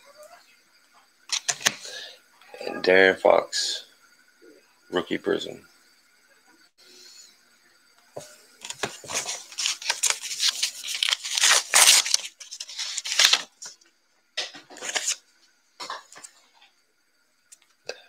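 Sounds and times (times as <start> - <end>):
packaging rustling and scraping: 8.6 - 13.8, 14.6 - 15.2.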